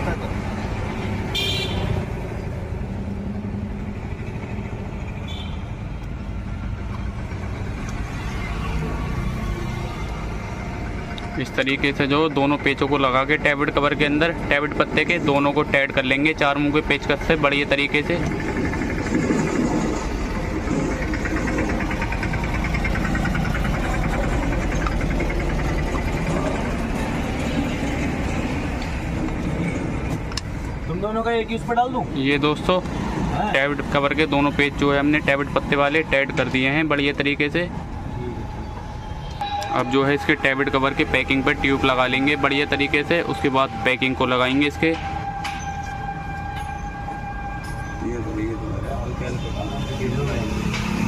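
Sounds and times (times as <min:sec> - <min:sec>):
vehicle engines rumbling: 0:00.0 - 0:51.0
high-pitched tone: 0:35.9 - 0:49.8.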